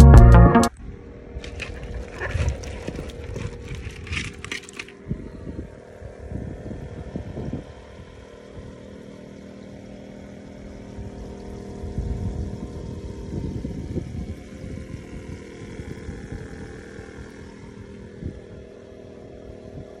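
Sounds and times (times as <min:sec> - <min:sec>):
aerator pump humming: 0:00.8 - 0:20.0
hand rustling through shrimp: 0:01.4 - 0:04.9.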